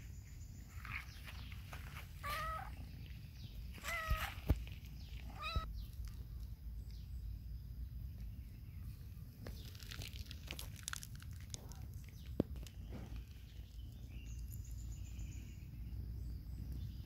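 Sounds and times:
cat meowing: 2.2 - 2.8, 3.8 - 4.4, 5.3 - 5.7.

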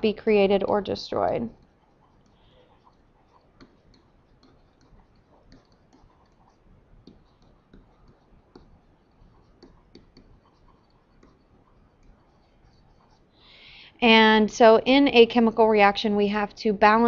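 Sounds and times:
stylus tapping on pen tablet: 1.6 - 12.3.

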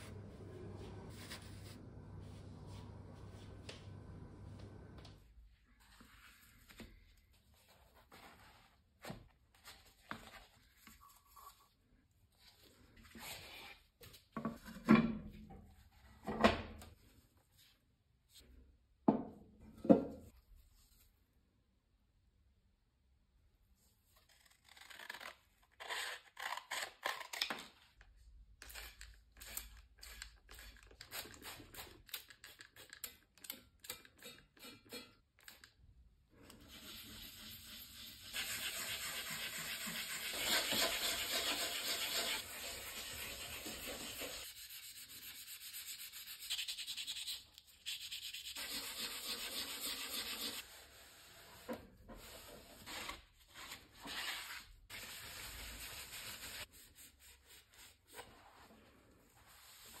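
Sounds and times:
wet-sanding metal tube: 36.7 - 51.2.

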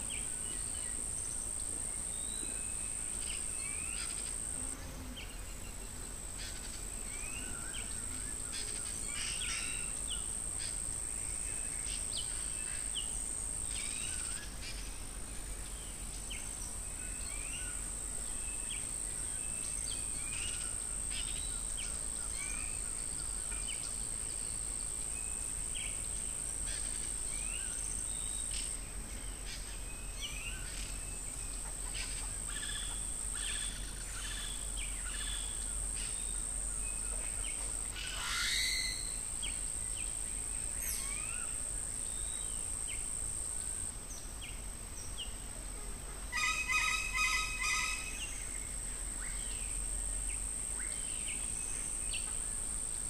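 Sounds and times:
insects droning: 0.0 - 53.0.

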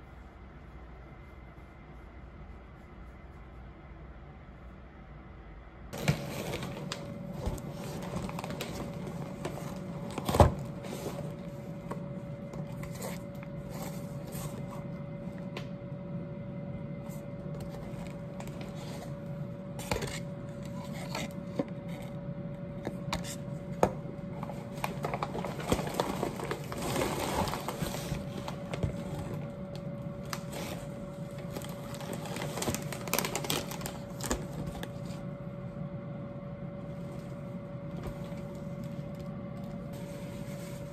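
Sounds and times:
faint hum: 0.0 - 40.9
plastic packaging rustling: 6.0 - 14.9, 24.4 - 35.2.

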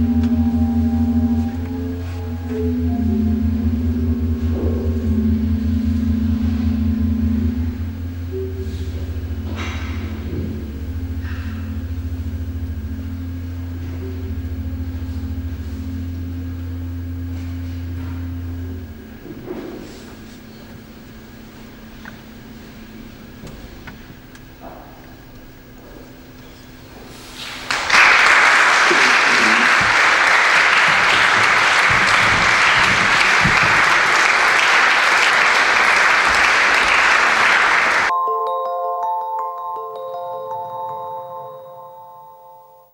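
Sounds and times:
pipe organ chord: 0.0 - 42.9
audience applauding: 27.6 - 38.1
chiming jingle: 38.1 - 42.9.

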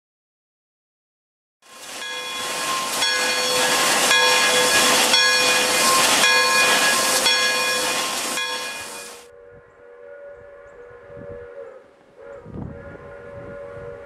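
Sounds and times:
steam whistle: 1.6 - 14.0
hissing steam: 1.7 - 9.3.

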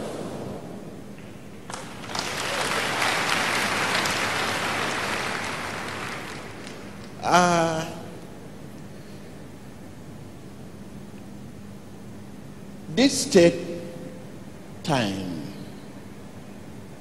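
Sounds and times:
congregation applauding: 1.7 - 7.4.

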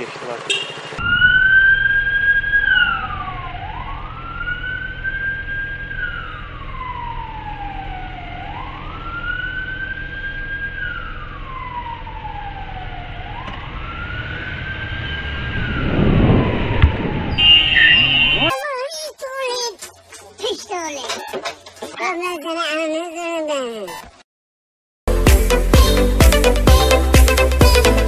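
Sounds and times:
emergency siren wailing: 1.0 - 18.6
low rumble: 13.6 - 18.5.

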